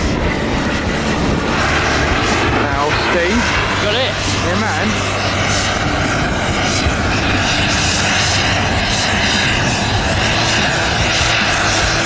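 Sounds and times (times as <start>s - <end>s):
model jet turbine roaring: 0.0s - 12.0s.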